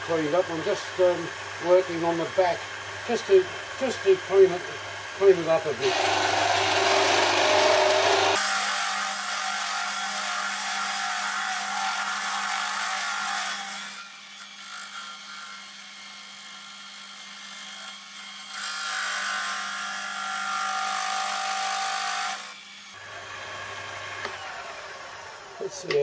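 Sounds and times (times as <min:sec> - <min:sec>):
lathe motor hum: 0:00.0 - 0:08.4, 0:22.9 - 0:26.0
lathe tool cutting aluminium: 0:00.0 - 0:15.8.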